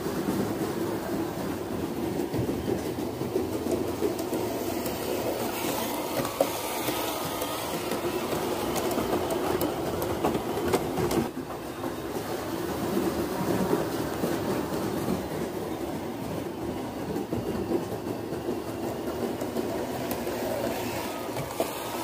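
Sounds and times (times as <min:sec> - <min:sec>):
wheels clicking over rails: 0:00.0 - 0:22.0
model train motor hum: 0:03.3 - 0:11.3, 0:17.4 - 0:22.0.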